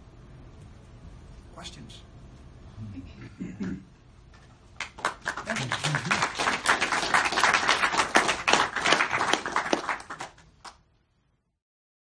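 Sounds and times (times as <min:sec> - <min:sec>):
audience applauding: 0:04.8 - 0:10.8.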